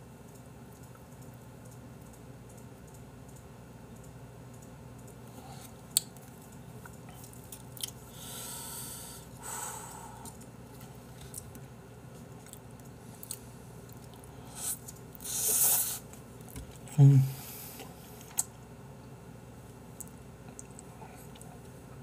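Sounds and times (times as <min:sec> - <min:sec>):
man chewing noodles: 0:05.0 - 0:08.3, 0:12.4 - 0:16.9.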